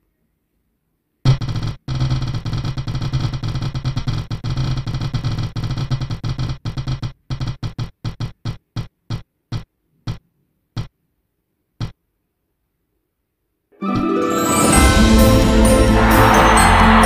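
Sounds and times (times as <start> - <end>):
music: 13.8 - 17.0.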